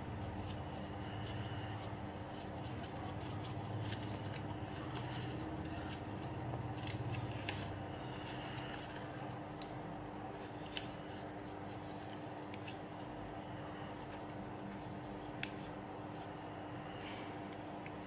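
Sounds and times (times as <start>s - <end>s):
steady low background hum: 0.0s - 18.0s
paper rustling and crinkling: 0.1s - 13.1s.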